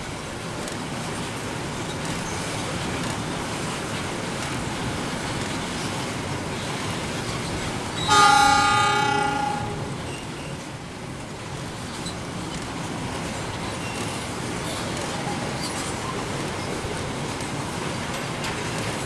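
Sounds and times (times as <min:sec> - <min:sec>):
diesel locomotive running: 0:00.0 - 0:19.0
locomotive horn: 0:08.1 - 0:10.1.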